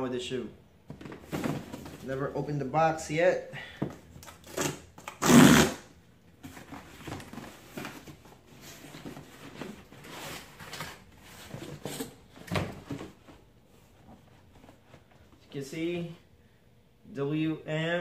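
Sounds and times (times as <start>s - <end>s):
cardboard rustling and scraping: 0.9s - 2.2s, 6.4s - 15.1s.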